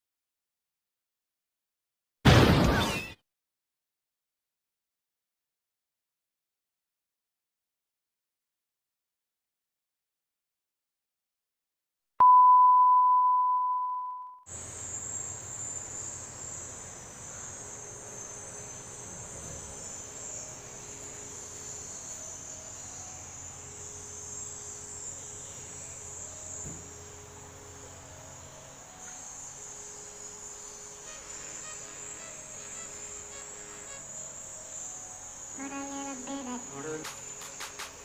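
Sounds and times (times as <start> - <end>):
faint background hum: 14.5 - 38.0
high-pitched insect trill: 14.5 - 38.0
steady test tone: 35.6 - 37.7.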